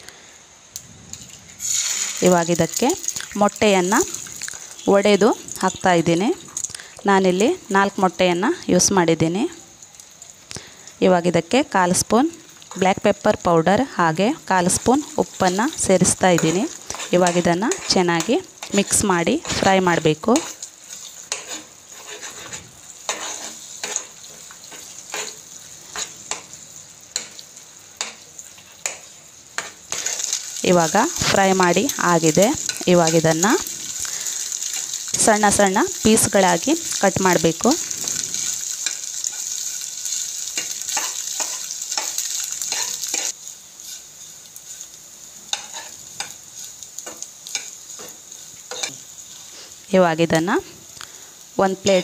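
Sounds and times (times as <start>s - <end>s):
eggs sizzling in oil: 0.0s - 52.0s
metal spoon scraping a pan: 15.3s - 26.6s, 28.0s - 44.9s, 45.5s - 49.8s.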